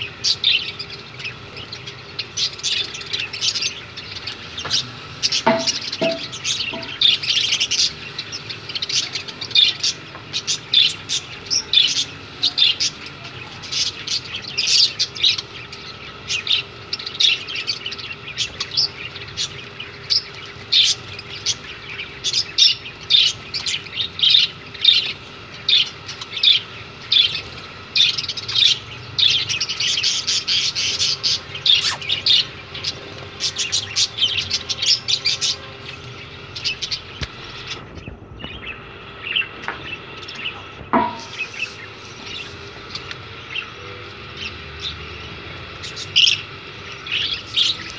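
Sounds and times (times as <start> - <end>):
budgerigars chirping: 0.0 - 47.9.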